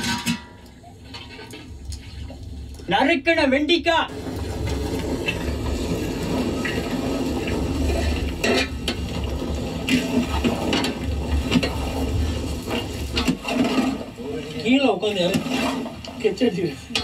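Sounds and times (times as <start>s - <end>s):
wooden spoon stirring in metal bowl: 4.2s - 17.0s.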